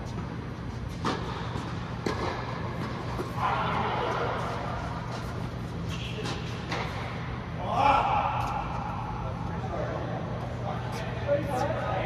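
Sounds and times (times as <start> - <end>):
steady low hum: 0.0 - 12.0
tennis ball impacts: 0.9 - 3.4.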